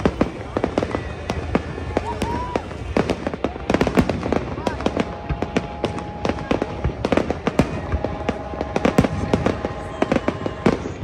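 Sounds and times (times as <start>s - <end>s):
fireworks bangs and crackles: 0.0s - 11.0s.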